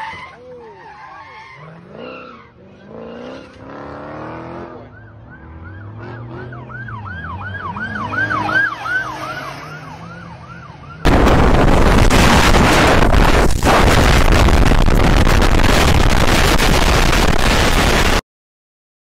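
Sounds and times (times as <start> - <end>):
car engine revving: 1.6 - 10.3
siren yelping: 4.6 - 11.1
vehicle engine rumble: 4.7 - 18.2.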